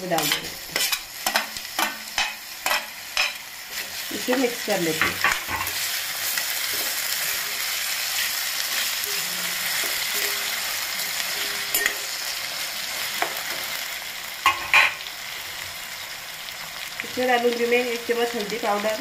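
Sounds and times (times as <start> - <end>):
spatula scraping and knocking pan: 0.0 - 3.9
vegetables sizzling in oil: 0.0 - 19.0.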